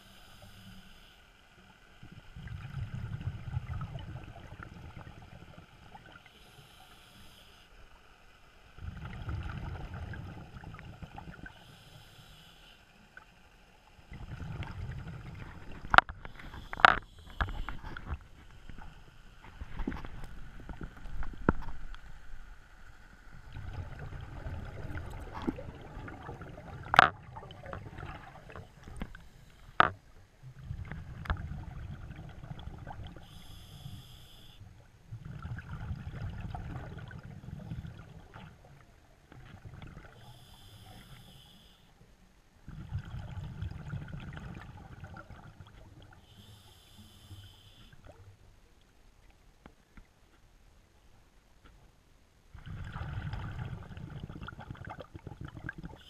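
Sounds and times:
regulator hiss on inhale: 0.0 - 2.0, 6.0 - 8.5, 11.4 - 13.6, 16.2 - 20.0, 28.9 - 29.9, 33.1 - 34.7, 40.1 - 42.0, 46.1 - 48.0
exhaled bubbles rumbling: 2.0 - 6.2, 8.8 - 11.6, 14.0 - 21.9, 23.3 - 29.3, 30.0 - 33.2, 35.0 - 40.2, 42.6 - 46.2, 52.5 - 56.0.

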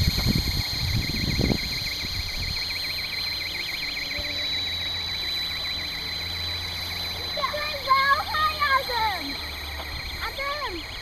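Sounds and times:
wind buffeting microphone: 0.0 - 2.8, 9.6 - 11.0
rc helicopter motor whine: 0.0 - 11.0
warbling rotor tone: 0.0 - 11.0.

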